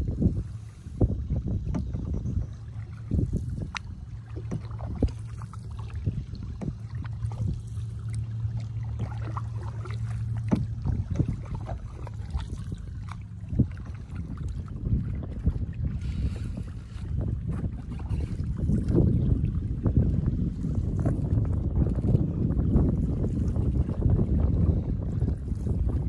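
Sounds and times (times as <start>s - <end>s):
low rumble: 0.0s - 26.0s
paddle strokes in water: 0.0s - 26.0s
knocks against canoe hull: 1.6s - 2.4s, 3.7s - 5.4s, 6.5s - 7.5s, 10.4s - 11.4s
small splashes: 1.7s - 19.8s.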